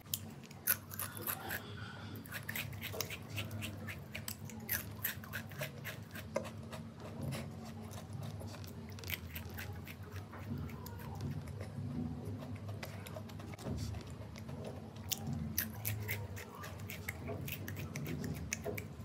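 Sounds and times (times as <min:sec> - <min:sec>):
person crunching crisps: 0:00.0 - 0:06.3, 0:07.7 - 0:10.8.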